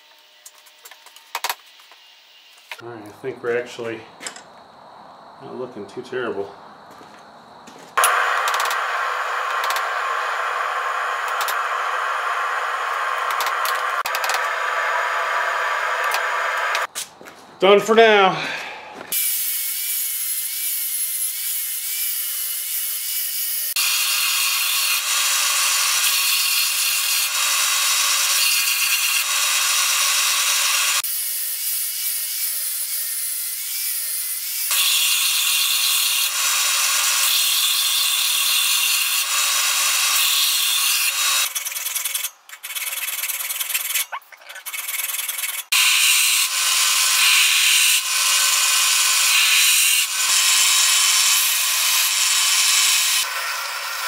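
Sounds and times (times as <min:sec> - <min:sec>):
angle grinder grinding steel: 0:07.7 - 0:16.9, 0:19.1 - 0:54.0
belt sander running: 0:07.7 - 0:16.9, 0:45.3 - 0:54.0.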